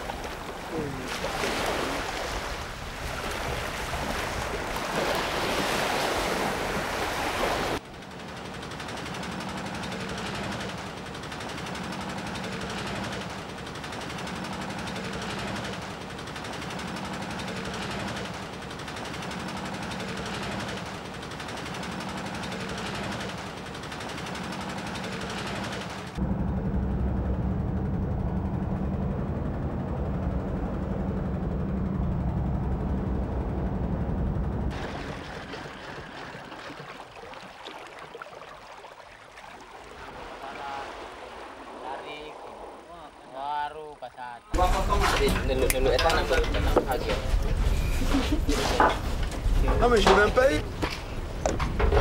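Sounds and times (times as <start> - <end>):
water splashing against boat hull: 0.0 - 7.8, 34.7 - 42.9
water wash: 0.0 - 26.2, 34.7 - 43.4
deep low rumble: 26.2 - 35.1.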